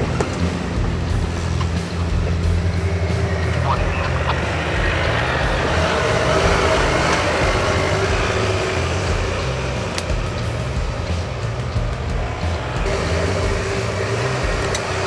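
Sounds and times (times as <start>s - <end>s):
vehicle engine driving slowly: 0.0s - 15.0s.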